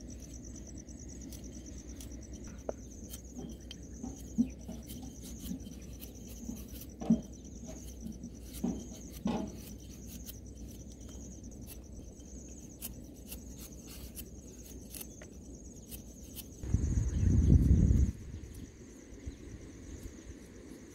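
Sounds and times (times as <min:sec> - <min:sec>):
insects pulsing trill: 0:00.0 - 0:20.9
cleaver scraping radish skin: 0:01.2 - 0:16.6.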